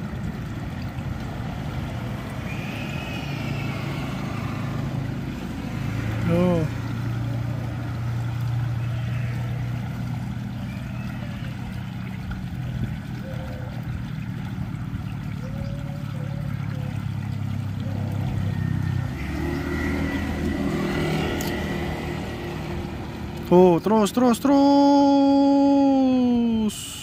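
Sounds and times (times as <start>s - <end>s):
small engine running: 1.2s - 12.7s, 13.9s - 23.7s.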